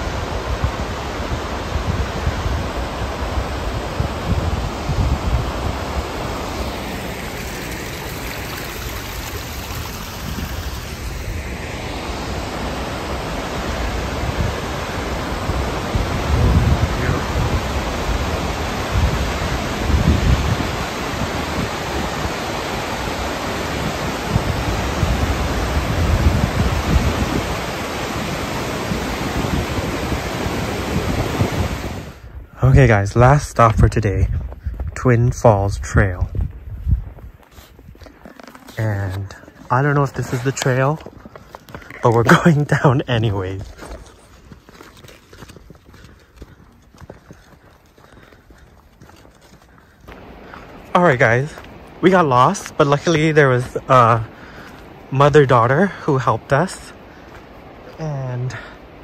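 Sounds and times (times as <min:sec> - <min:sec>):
waterfall and creek rushing: 0:00.0 - 0:32.3, 0:42.1 - 0:43.7, 0:50.1 - 0:59.0
wind buffeting microphone: 0:00.0 - 0:38.3, 0:39.2 - 0:59.0.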